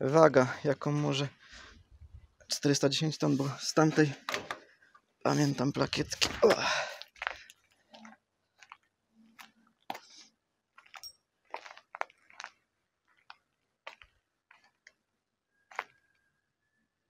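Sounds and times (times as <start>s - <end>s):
footsteps crunching on debris: 6.0s - 10.2s, 10.8s - 14.9s.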